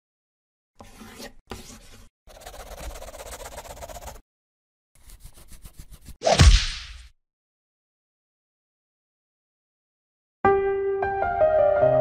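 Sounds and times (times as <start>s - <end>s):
pencil scribbling on paper: 0.8s - 4.2s, 5.0s - 6.2s.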